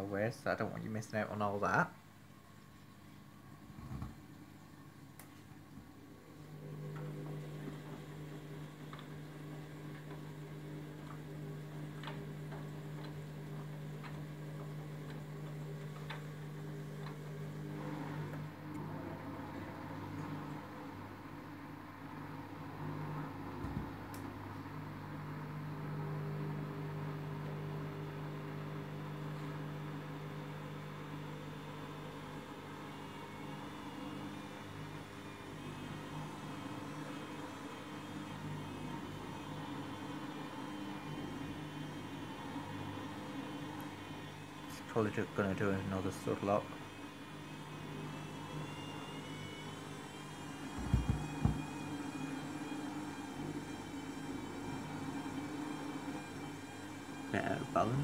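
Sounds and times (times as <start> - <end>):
washing machine spinning: 3.2 - 58.0.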